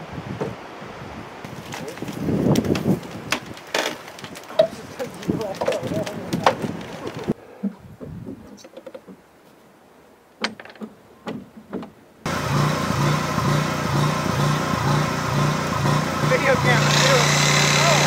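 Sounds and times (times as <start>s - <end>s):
engine idling: 12.3s - 18.0s.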